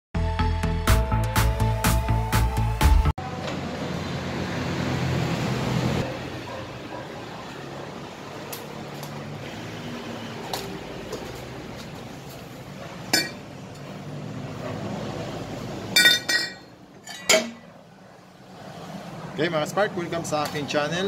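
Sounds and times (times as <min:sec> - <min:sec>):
low traffic hum: 0:03.2 - 0:21.0
metal pipe clinking on steel sheet: 0:13.1 - 0:13.4, 0:16.0 - 0:17.7.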